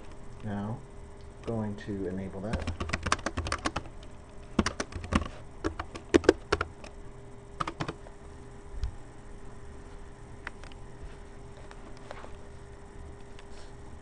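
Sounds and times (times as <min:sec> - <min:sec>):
faint steady hum: 0:00.0 - 0:14.0
computer keyboard typing: 0:02.4 - 0:07.0, 0:07.6 - 0:08.0.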